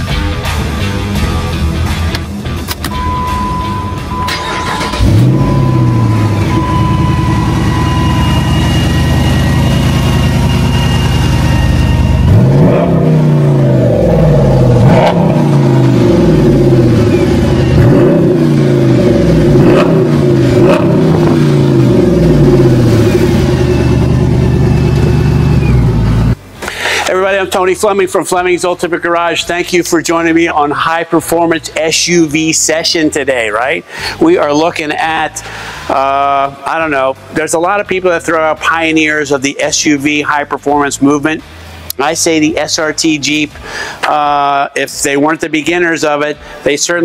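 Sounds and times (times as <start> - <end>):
car engine starting: 0.0 - 29.5
car engine idling: 0.9 - 27.0
engine revving in throttle blips: 3.0 - 26.4.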